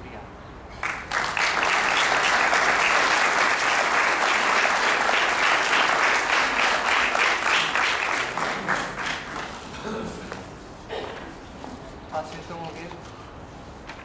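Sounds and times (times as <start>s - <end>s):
audience applauding: 0.8s - 9.7s.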